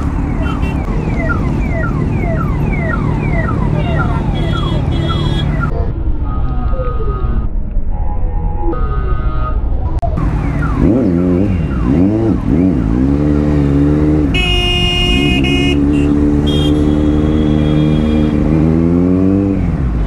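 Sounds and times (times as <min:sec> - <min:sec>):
horn honking: 0:00.4 - 0:00.9, 0:03.3 - 0:07.5, 0:14.2 - 0:18.7
motorcycle engine revving: 0:10.2 - 0:20.0.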